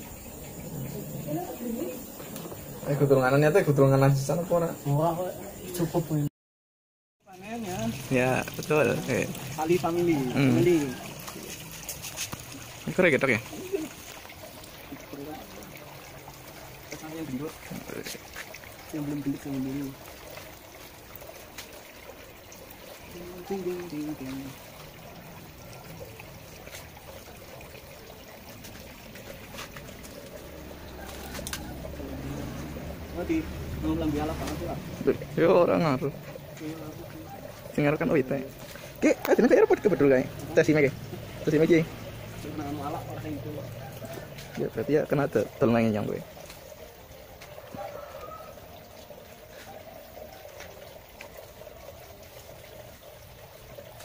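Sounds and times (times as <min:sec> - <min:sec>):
water trickling: 0:00.0 - 0:06.3, 0:07.2 - 0:54.0
plants rustling and clicking: 0:10.4 - 0:12.7, 0:28.5 - 0:32.0.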